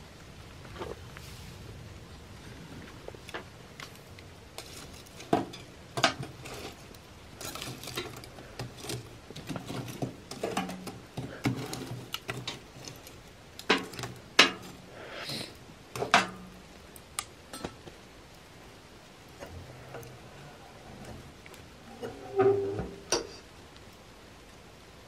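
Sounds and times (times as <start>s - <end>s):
metal poker scraping stove: 4.6s - 14.8s, 19.4s - 23.5s.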